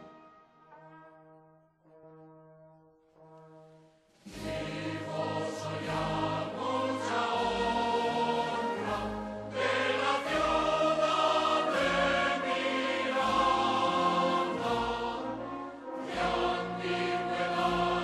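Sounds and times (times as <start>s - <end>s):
choir singing: 4.3s - 18.0s.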